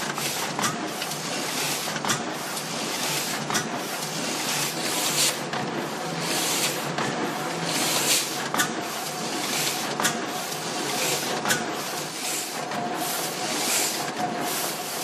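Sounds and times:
printing press clattering: 0:00.0 - 0:15.0.

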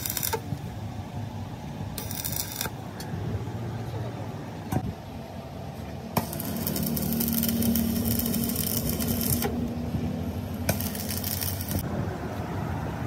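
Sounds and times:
welding arc crackling: 0:00.0 - 0:00.7, 0:02.0 - 0:02.8, 0:06.2 - 0:11.9.

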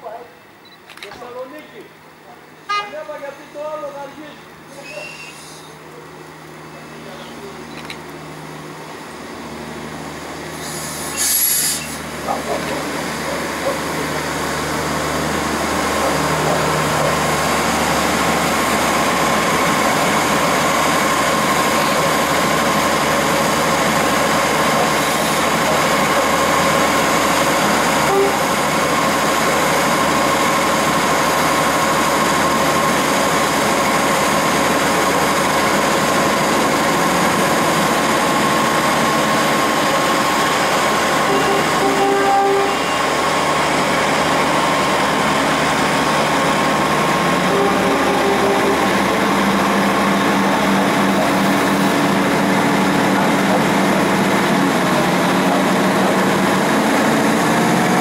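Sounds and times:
steady train hum: 0:00.0 - 0:58.0
steady train whine: 0:02.0 - 0:58.0
train running noise: 0:02.6 - 0:58.0
brief loud burst of noise: 0:10.5 - 0:12.1.

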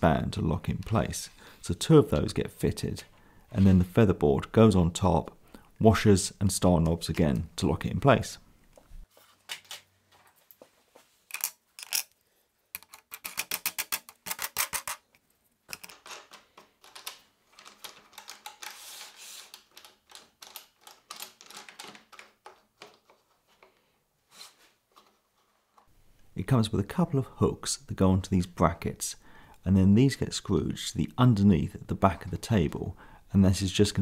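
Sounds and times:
plastic and metal parts clicking: 0:11.3 - 0:18.8, 0:19.4 - 0:23.7.

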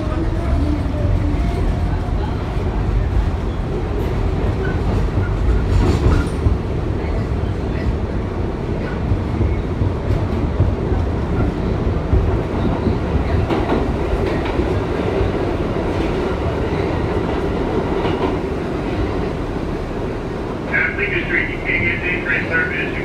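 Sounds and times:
subway wheels rumbling on rails: 0:00.0 - 0:23.0.

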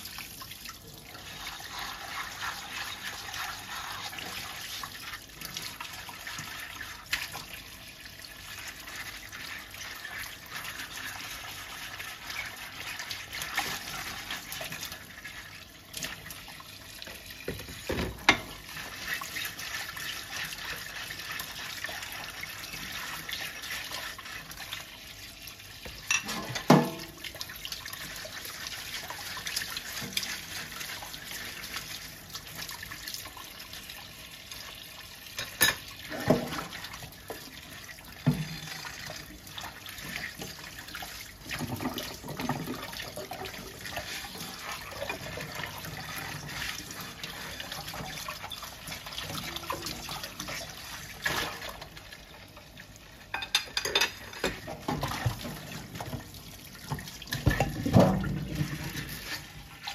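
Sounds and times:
tap water running into sink: 0:00.0 - 0:59.9
plates and bowls clinking: 0:26.0 - 0:27.1, 0:53.3 - 0:55.1.

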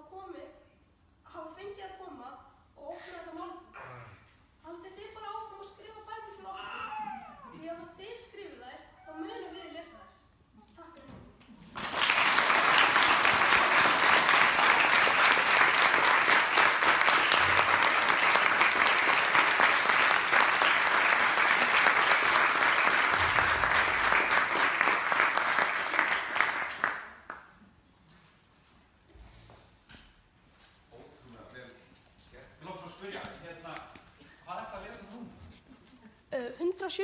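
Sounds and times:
audience applauding: 0:11.7 - 0:27.4.

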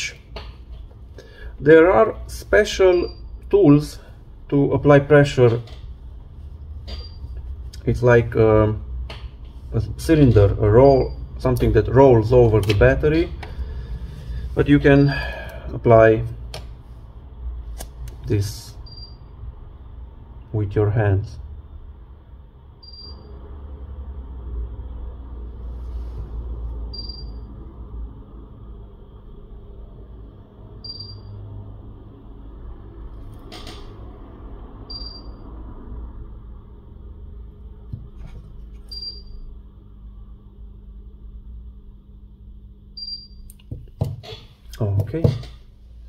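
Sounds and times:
low rumble and hum: 0:00.0 - 0:46.0
short electronic beep: 0:22.8 - 0:23.4, 0:26.9 - 0:27.5, 0:30.8 - 0:31.4, 0:34.9 - 0:35.4, 0:38.9 - 0:39.4.

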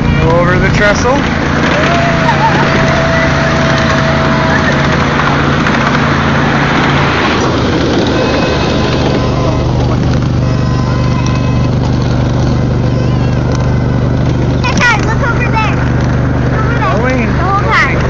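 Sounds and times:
train wheels clattering on rails: 0:00.0 - 0:16.8
low hum: 0:00.0 - 0:18.0.

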